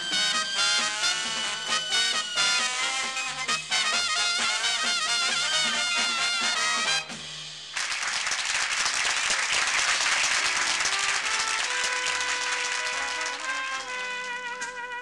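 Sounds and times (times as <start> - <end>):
held horn notes: 0.0 - 7.2
jazz band playing: 0.0 - 7.8, 10.8 - 15.0
audience applause: 7.8 - 15.0.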